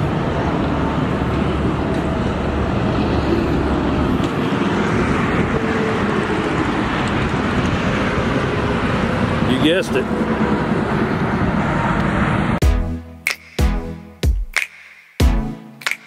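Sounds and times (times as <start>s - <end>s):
vehicle rumble: 0.0s - 12.6s.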